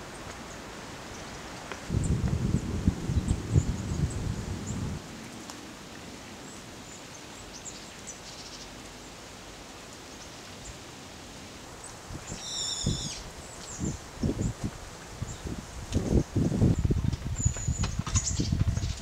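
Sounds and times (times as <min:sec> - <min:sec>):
loud bird call: 0:12.3 - 0:13.3
bird chirps: 0:12.3 - 0:14.0.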